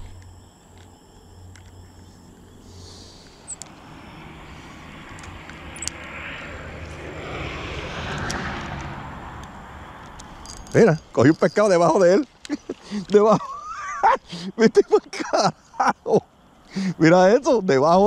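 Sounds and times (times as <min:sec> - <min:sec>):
passing vehicle engine hum: 0:02.1 - 0:12.2
sharp clicks: 0:03.2 - 0:03.9, 0:05.0 - 0:06.1, 0:08.1 - 0:11.4.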